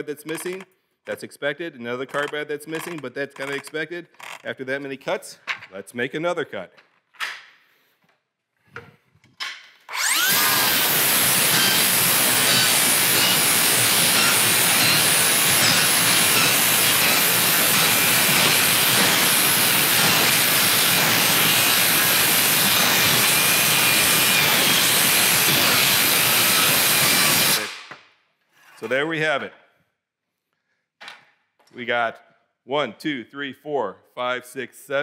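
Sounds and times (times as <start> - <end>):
circular saw cutting nailed board: 9.8 - 27.9.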